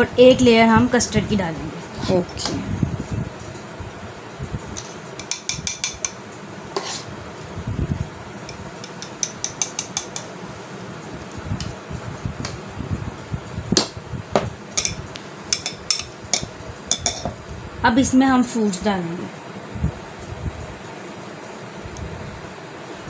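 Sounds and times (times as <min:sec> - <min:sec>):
metal spoon clinking on pot and glass: 0:08.8 - 0:10.3, 0:14.8 - 0:17.3.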